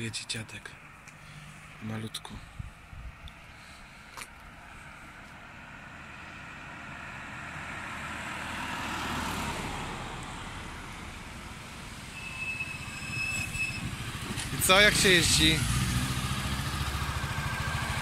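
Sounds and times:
car passing by: 0:04.7 - 0:18.0.

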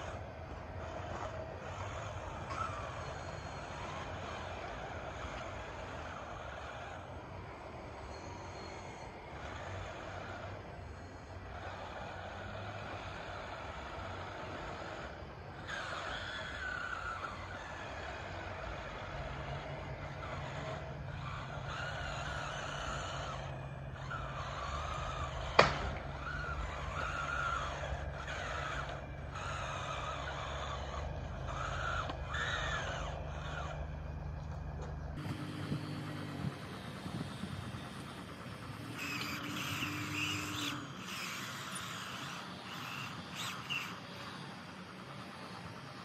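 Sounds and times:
toy bulldozer motors whining: 0:00.0 - 0:46.0
sharp crack: 0:25.5 - 0:26.4.

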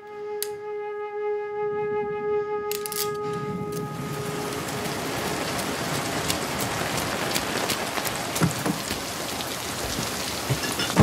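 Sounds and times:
raindrop hits: 0:02.8 - 0:11.0
rain on a car: 0:03.3 - 0:11.0.

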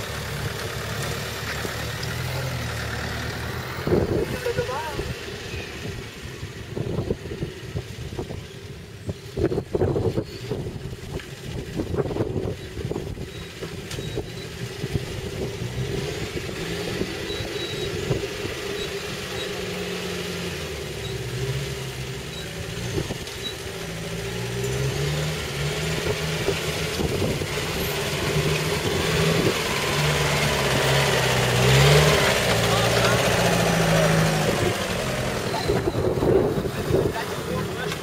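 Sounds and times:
off-road vehicle engine running: 0:00.0 - 0:38.0.

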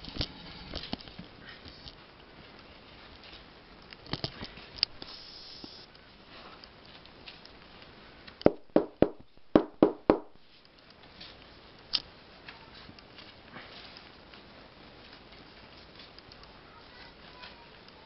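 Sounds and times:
sharp knocks: 0:08.5 - 0:10.4.

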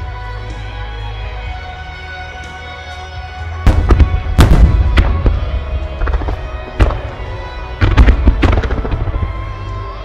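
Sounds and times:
music with sustained tones: 0:00.0 - 0:10.0
firework shells booming: 0:03.7 - 0:07.2.

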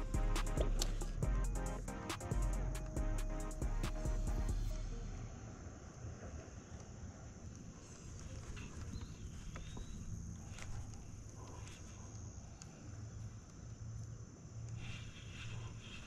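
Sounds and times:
low hum: 0:00.0 - 0:07.8
insects droning: 0:00.0 - 0:16.0
faint clicks: 0:05.8 - 0:15.5.

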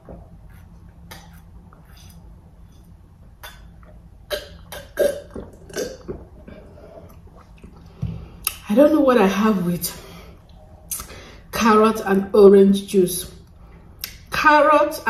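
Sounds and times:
person gulping juice: 0:03.4 - 0:08.6.

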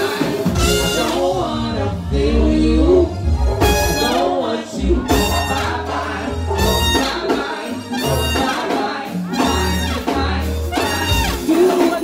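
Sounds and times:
live band playing: 0:00.0 - 0:12.0
person singing: 0:00.0 - 0:12.0
deep bass: 0:00.5 - 0:07.3, 0:07.9 - 0:08.5.

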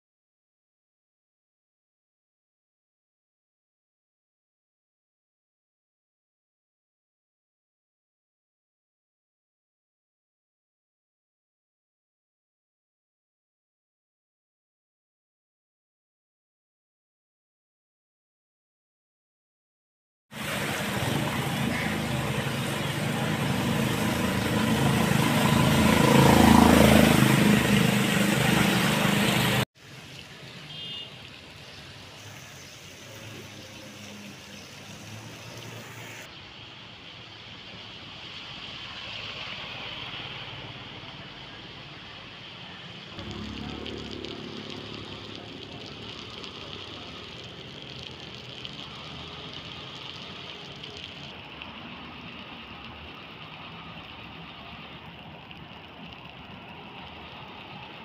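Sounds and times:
hiss of traffic and water: 0:20.3 - 0:58.0
vehicle driving on wet road: 0:20.4 - 0:58.0.

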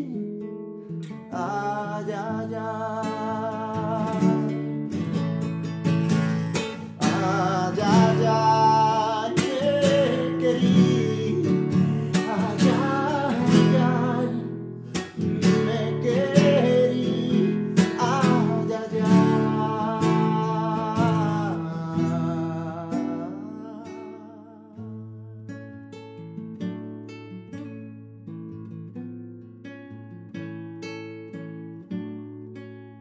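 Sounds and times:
man singing: 0:00.0 - 0:00.4, 0:01.3 - 0:05.2, 0:06.0 - 0:25.3
classical guitar strumming: 0:00.0 - 0:33.0.

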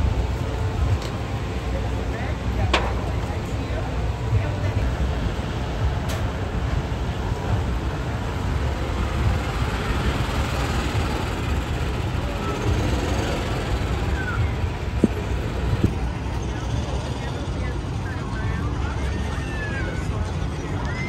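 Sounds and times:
continuous low rumble: 0:00.0 - 0:21.0
indistinct chatter of passers-by: 0:00.0 - 0:21.0.

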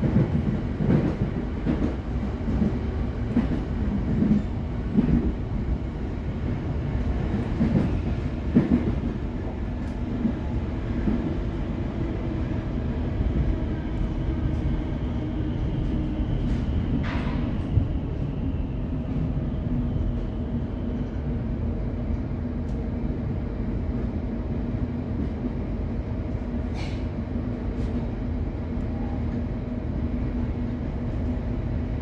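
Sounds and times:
train carriage rumble: 0:00.0 - 0:32.0.

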